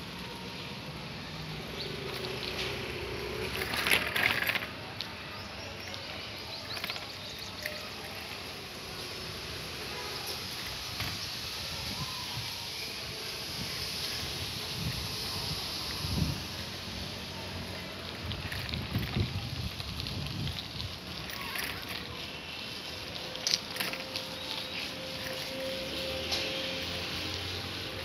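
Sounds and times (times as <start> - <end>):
wind and road noise: 0.0 - 28.0
bicycle clicks and rattles: 1.5 - 8.4, 17.4 - 28.0.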